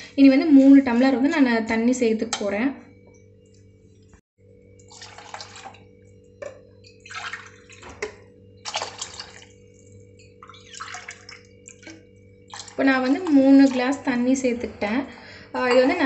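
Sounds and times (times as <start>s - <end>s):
water pouring into a pot: 4.8s - 6.1s, 6.8s - 14.0s.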